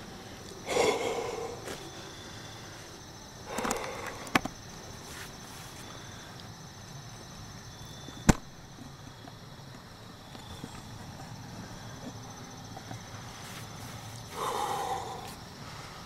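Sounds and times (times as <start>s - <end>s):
insects trilling: 0.0s - 16.0s
rustling noise: 13.2s - 14.3s.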